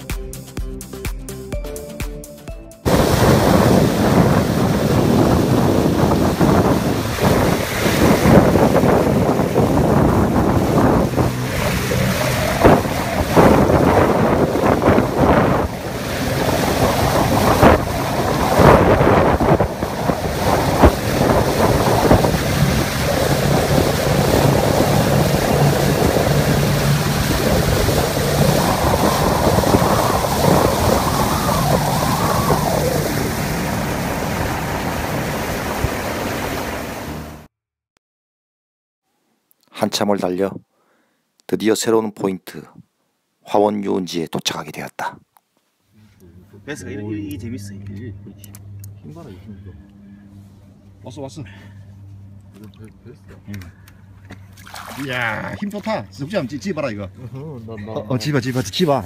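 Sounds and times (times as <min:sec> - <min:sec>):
wind buffeting microphone: 0:02.9 - 0:37.4
low motor hum: 0:02.9 - 0:37.5, 0:46.0 - 0:58.4
water splashing along hull: 0:02.9 - 0:37.5, 0:54.1 - 0:56.0.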